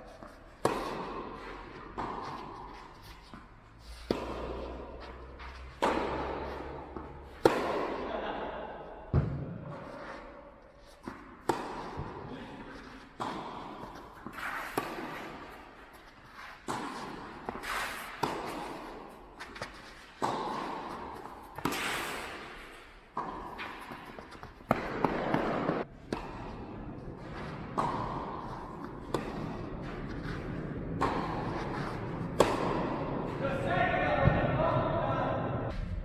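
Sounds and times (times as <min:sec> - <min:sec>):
tennis balls struck by rackets: 0:00.0 - 0:33.4.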